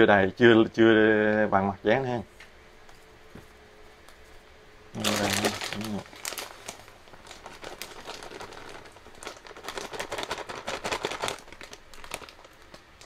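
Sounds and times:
plastic bag crinkling: 4.9 - 13.0.

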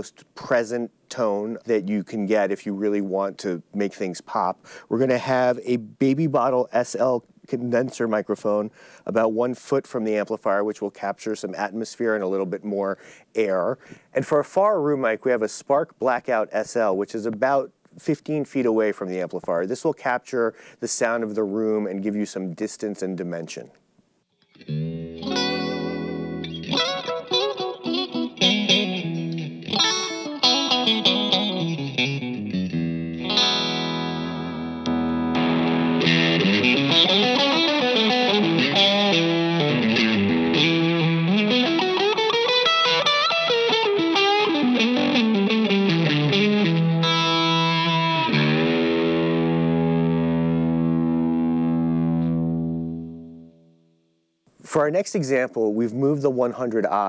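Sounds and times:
electric guitar playing: 24.3 - 54.0.

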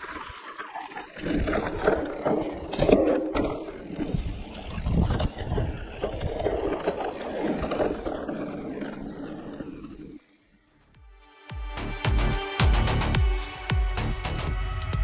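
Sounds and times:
bike tyres rolling on dirt trail: 0.0 - 10.9
bike frame and chain rattling: 1.2 - 10.2.

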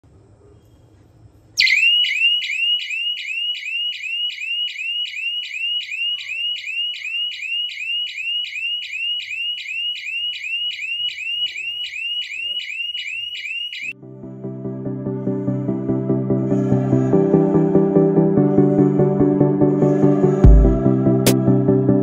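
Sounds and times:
gas detector alarm tone: 1.6 - 14.0.

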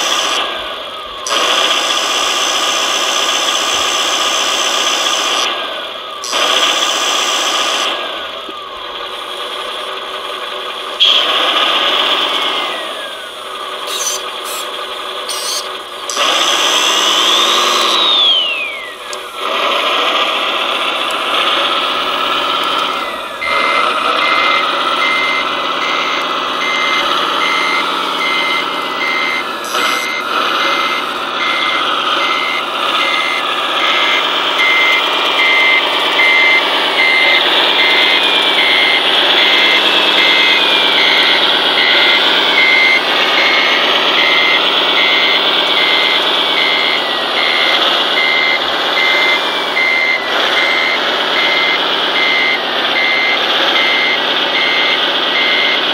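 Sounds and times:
simulated diesel engine revving: 0.0 - 55.9
electronic reversing beeper: 15.3 - 19.3, 21.6 - 55.9.

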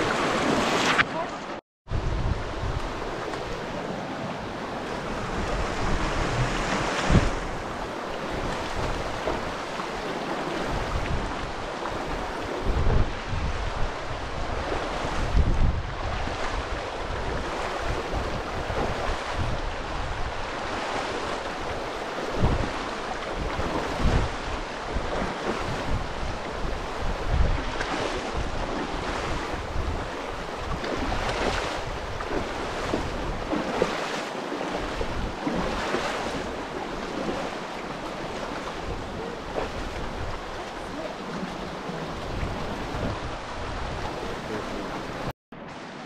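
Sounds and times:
creek water churning: 0.0 - 46.0
wind buffeting microphone: 1.9 - 45.3.

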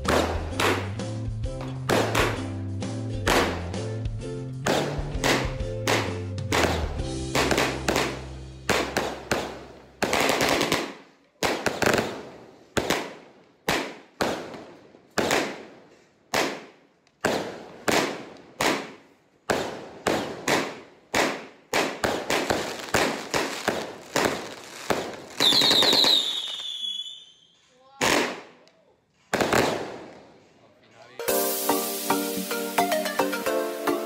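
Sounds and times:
fireworks bangs: 0.0 - 2.5, 3.2 - 3.8, 4.6 - 28.6, 29.2 - 30.6, 31.2 - 34.0
firework crackling burst: 4.7 - 14.6, 15.2 - 28.5, 31.2 - 34.0
falling firework whistle: 25.4 - 27.7.

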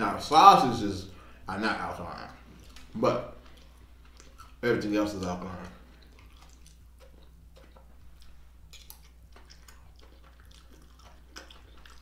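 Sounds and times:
steady low hum: 0.0 - 12.0
close chewing mouth clicks: 2.5 - 4.6, 5.8 - 12.0.

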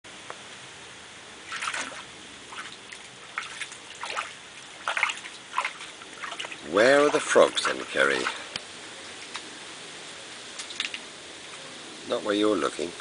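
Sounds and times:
water sloshing and splashing: 1.4 - 9.4.

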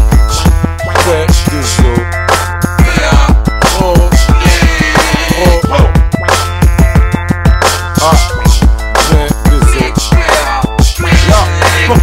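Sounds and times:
hip hop music with deep bass: 0.0 - 12.0.

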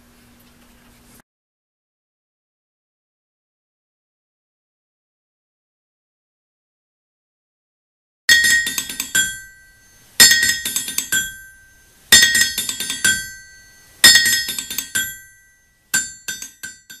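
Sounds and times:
hammered metal percussion music: 8.3 - 17.0.

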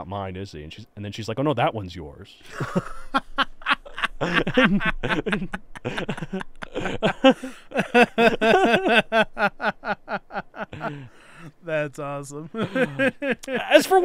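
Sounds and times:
men laughing hard: 2.4 - 11.6, 12.5 - 13.8.

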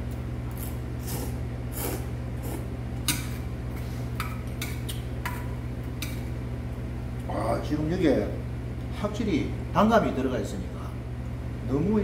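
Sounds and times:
steady low hum: 0.0 - 12.0
slurp of noodles: 1.0 - 2.7.

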